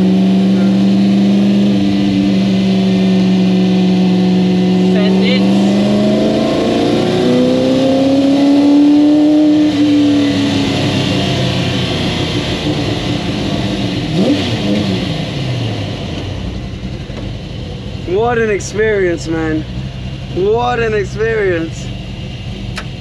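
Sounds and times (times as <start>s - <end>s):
car engine accelerating: 0.0s - 23.0s.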